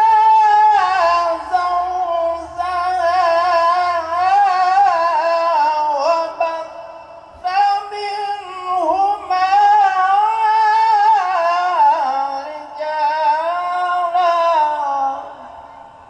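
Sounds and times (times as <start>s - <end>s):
man chanting over a loudspeaker: 0.0s - 16.0s.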